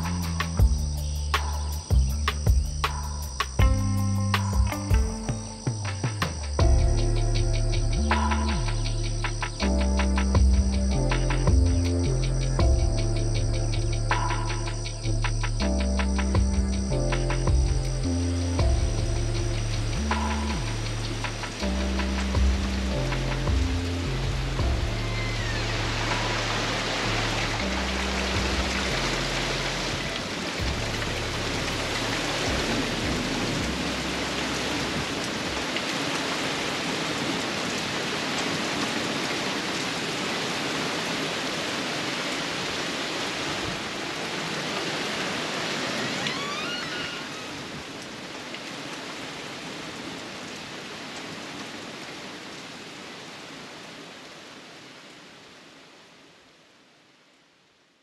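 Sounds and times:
low bass music: 0:00.0 - 0:35.6
heavy rain pouring: 0:00.0 - 0:57.4.

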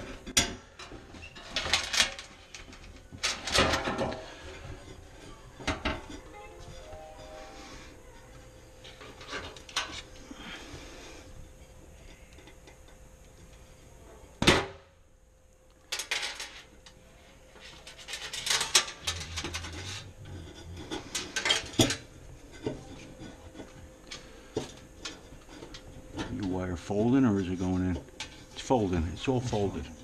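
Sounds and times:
metal parts clinking and rattling: 0:01.2 - 0:04.2, 0:15.9 - 0:16.7, 0:17.7 - 0:22.9.

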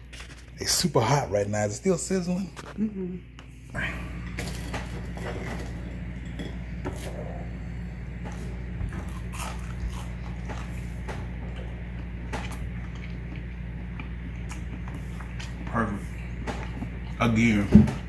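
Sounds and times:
low hum: 0:00.0 - 0:18.0
crunchy chewing: 0:08.2 - 0:17.1.

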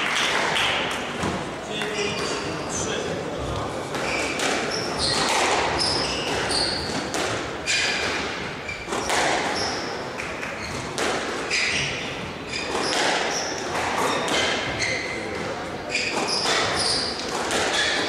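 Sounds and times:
shoes squeaking on wooden floor: 0:01.2 - 0:18.0
squash ball hits: 0:03.8 - 0:18.0.

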